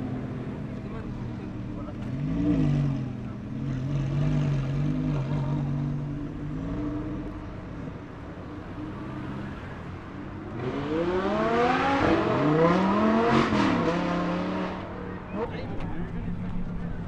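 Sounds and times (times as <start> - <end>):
car accelerating hard: 0.7 - 7.9, 10.4 - 17.0
car engine running: 14.9 - 17.0.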